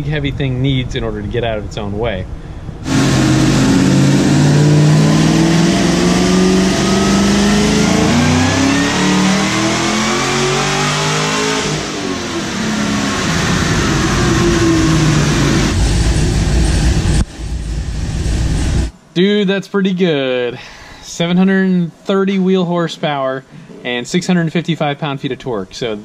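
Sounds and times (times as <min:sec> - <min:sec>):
car engine revving: 0:02.8 - 0:18.9.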